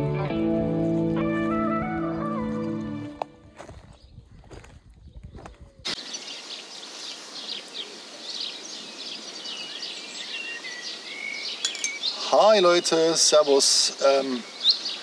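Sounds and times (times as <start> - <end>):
small birds chirping: 3.7 - 15.0
steady outdoor hiss: 5.8 - 15.0.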